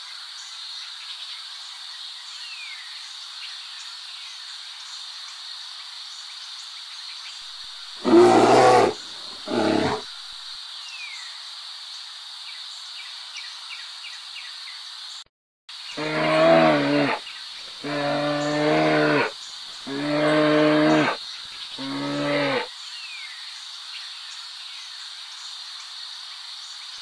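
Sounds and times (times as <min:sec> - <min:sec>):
drawn-out animal calls: 0:08.0 - 0:10.0, 0:16.0 - 0:17.2, 0:17.8 - 0:19.3, 0:19.9 - 0:21.2, 0:21.8 - 0:22.7.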